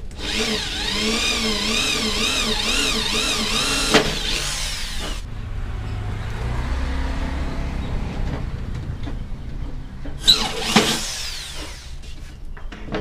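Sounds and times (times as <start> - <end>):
electric drill boring into wood: 0.0 - 5.2, 10.2 - 12.1
drill bit squeal: 10.2 - 12.0.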